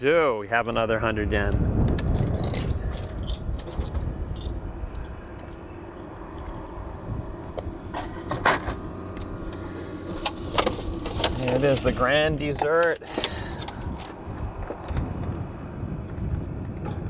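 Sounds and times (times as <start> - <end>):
coins clinking in vending machine: 2.4 - 6.8.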